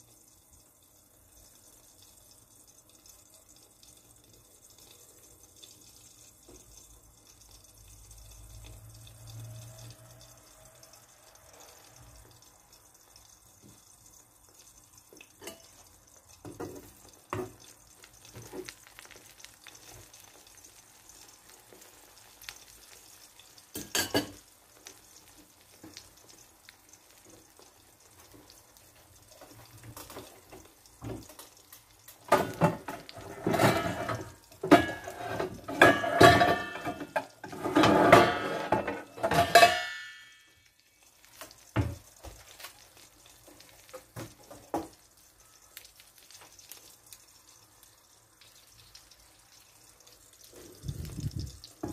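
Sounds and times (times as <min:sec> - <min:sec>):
egg frying faint sizzle: 0:00.0 - 0:51.9
spatula clattering on pan: 0:15.3 - 0:15.9, 0:23.7 - 0:24.4, 0:32.2 - 0:40.6.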